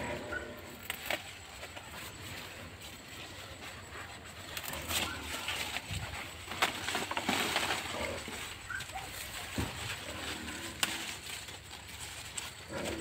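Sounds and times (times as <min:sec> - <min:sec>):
leaves rustling and crackling: 0:00.0 - 0:13.0
stems snapping: 0:00.8 - 0:01.8, 0:04.5 - 0:13.0.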